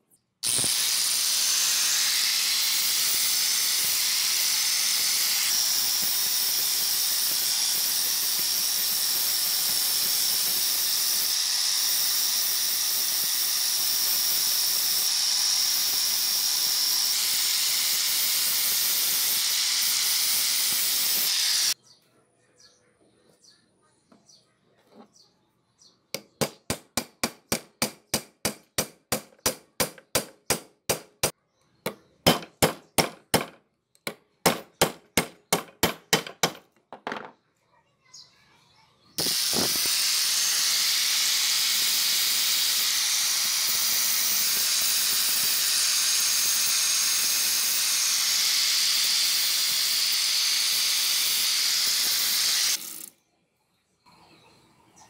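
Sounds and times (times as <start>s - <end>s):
loud steady hiss: 0.4s - 21.8s, 39.2s - 52.9s
hammer knocking on nail: 31.9s - 37.3s.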